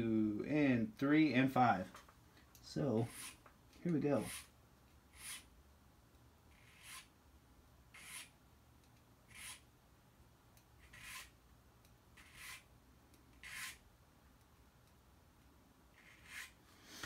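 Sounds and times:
file rasping on metal key: 0:03.0 - 0:03.4, 0:04.2 - 0:04.5, 0:06.5 - 0:07.1, 0:08.0 - 0:08.3, 0:09.3 - 0:09.6, 0:10.8 - 0:11.4, 0:12.2 - 0:12.7, 0:13.4 - 0:13.8, 0:16.0 - 0:16.6.

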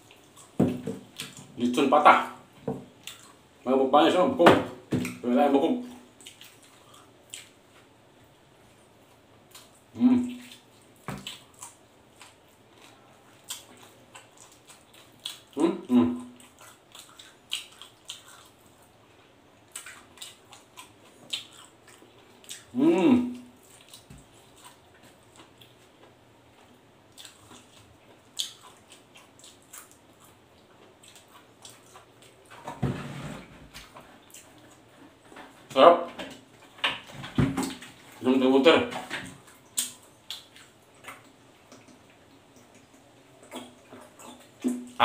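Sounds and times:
wet chewing and lip-smacking: 0:00.0 - 0:01.5, 0:03.0 - 0:03.4, 0:06.1 - 0:07.6, 0:09.5 - 0:15.6, 0:16.2 - 0:22.7, 0:23.4 - 0:32.6, 0:39.3 - 0:45.0.

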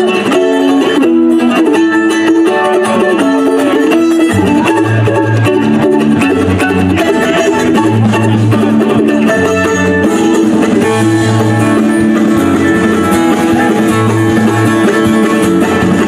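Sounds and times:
acoustic guitar picking: 0:00.0 - 0:16.0
mandolin picking: 0:00.0 - 0:16.0
low bass notes: 0:03.2 - 0:16.0.

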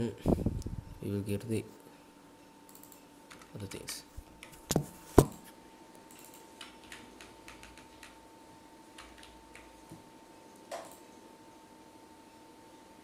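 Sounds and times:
keyboard typing: 0:02.7 - 0:03.5, 0:06.1 - 0:08.2, 0:09.0 - 0:09.8.

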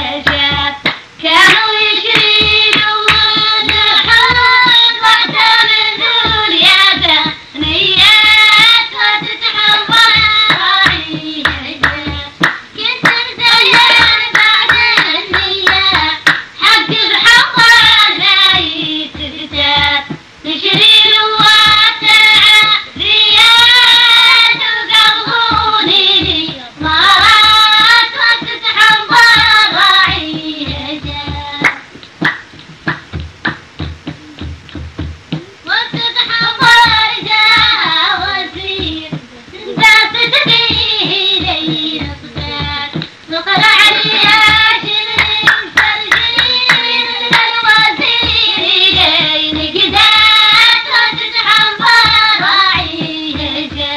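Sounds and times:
hand clapping: 0:00.2 - 0:53.9
high voice singing: 0:34.1 - 0:34.7, 0:35.3 - 0:53.9.

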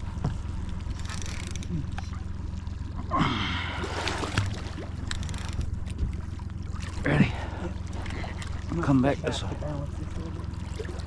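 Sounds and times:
steady low hum: 0:00.0 - 0:11.0
fish thrashing and splashing: 0:03.5 - 0:09.0.

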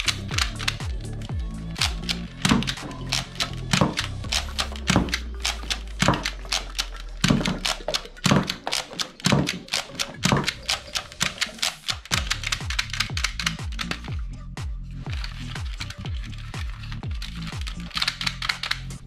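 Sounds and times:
toy gun plastic clicks: 0:00.0 - 0:14.1, 0:16.8 - 0:19.0
background music with beat: 0:00.0 - 0:19.0.

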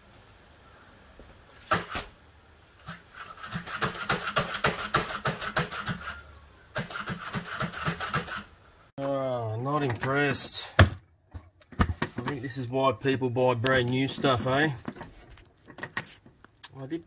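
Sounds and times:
two-stroke engine pull-start puffs: 0:01.6 - 0:02.2, 0:02.8 - 0:08.5.

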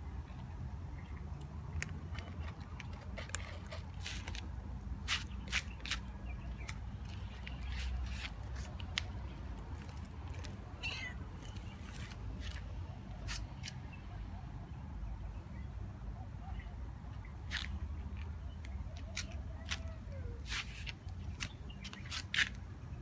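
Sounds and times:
cat meowing: 0:10.8 - 0:11.3.

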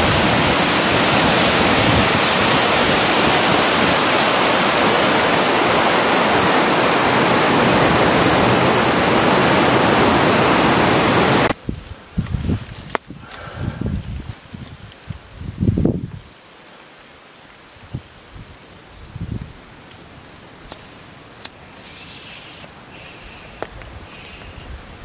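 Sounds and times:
water rushing over rocks: 0:00.0 - 0:11.6.

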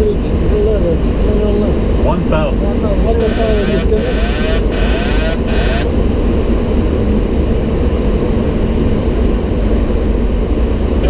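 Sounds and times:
airflow and engine drone: 0:00.0 - 0:11.0
radio static with voice: 0:02.0 - 0:05.9.

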